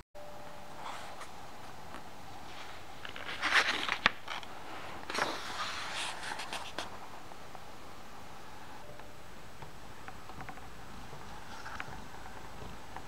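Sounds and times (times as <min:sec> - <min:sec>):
book pages turning: 0:00.8 - 0:07.0.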